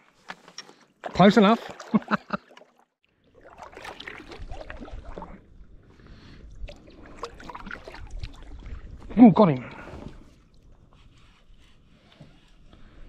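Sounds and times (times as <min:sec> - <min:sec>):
water trickling off paddle: 0:00.5 - 0:13.0
paddle dipping into water: 0:00.8 - 0:12.8.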